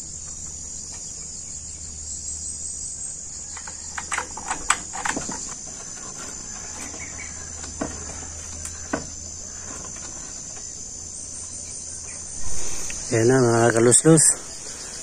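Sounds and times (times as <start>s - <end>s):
high-pitched insect chorus: 0.0s - 15.0s
bamboo knocking: 3.6s - 10.7s.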